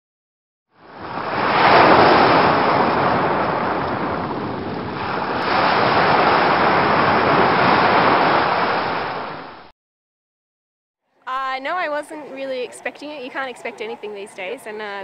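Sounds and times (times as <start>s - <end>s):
ocean waves breaking: 0.8s - 9.7s.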